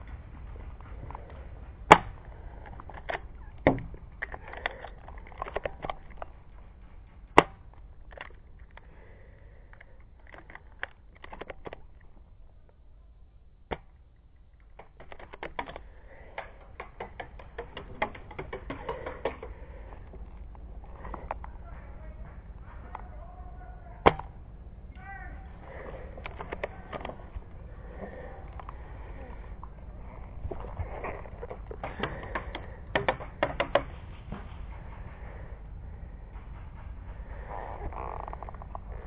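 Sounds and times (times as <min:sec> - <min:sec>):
gear rustling: 0:00.0 - 0:12.8.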